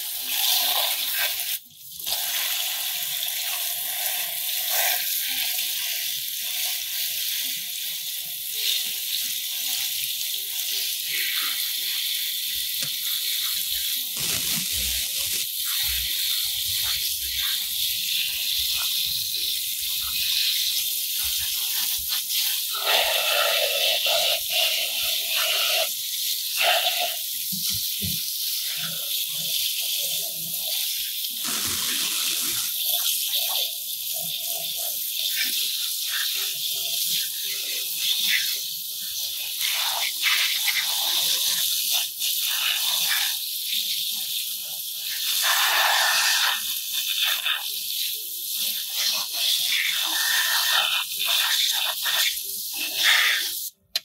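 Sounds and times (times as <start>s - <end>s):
hose spray hissing: 10.7s - 29.2s, 31.4s - 33.5s, 45.1s - 47.8s, 48.6s - 53.7s.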